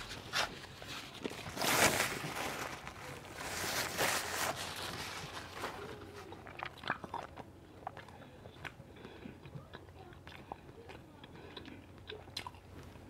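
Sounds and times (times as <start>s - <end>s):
person chewing food: 4.8s - 13.0s.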